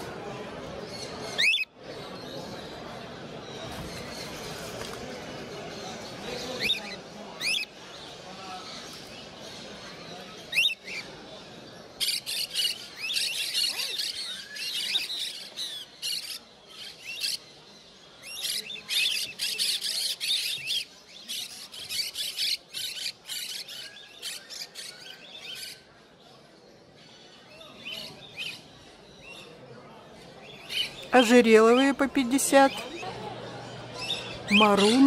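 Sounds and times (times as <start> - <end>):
parrots chirping and squawking: 34.0 - 35.0.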